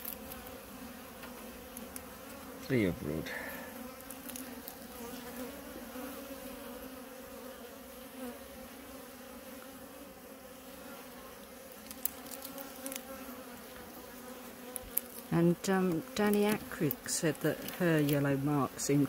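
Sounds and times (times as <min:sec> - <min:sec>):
bees buzzing: 0:00.0 - 0:19.0.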